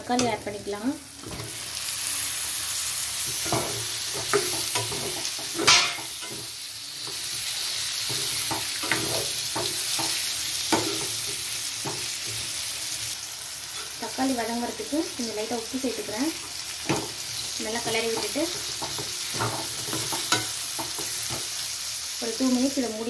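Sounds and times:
food sizzling in oil: 0.0 - 23.0
spatula scraping a pan: 3.2 - 12.7, 16.8 - 21.6.

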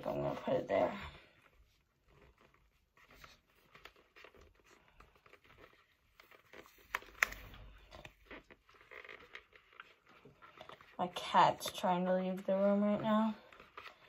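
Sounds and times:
fingers handling vinyl sticker: 2.0 - 11.0.

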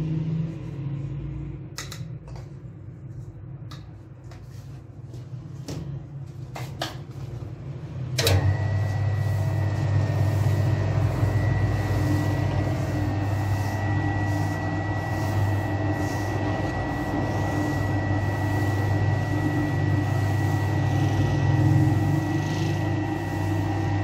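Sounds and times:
dough mixer humming and whining: 7.4 - 24.0.

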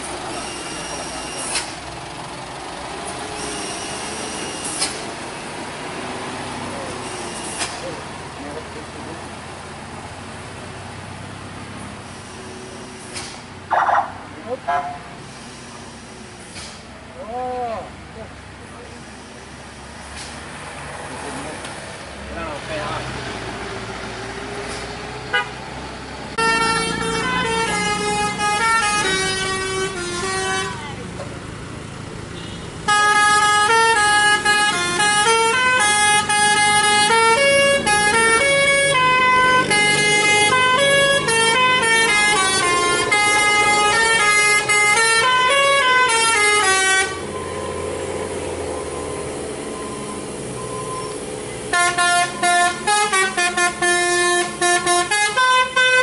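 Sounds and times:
engine and traffic noise: 0.0 - 56.0
musical air horn tune: 51.7 - 56.0.

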